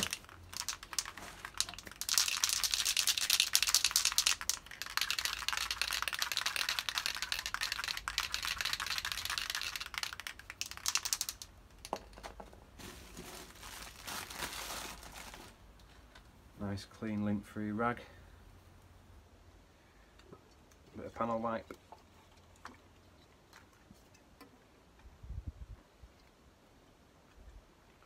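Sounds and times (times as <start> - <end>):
handling noises: 11.9 - 16.4.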